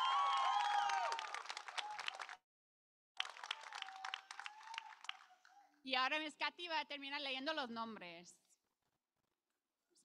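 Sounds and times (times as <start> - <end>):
audience applauding: 0.0 - 2.4, 3.2 - 5.6
cheers and whoops: 0.0 - 2.4, 3.2 - 5.4.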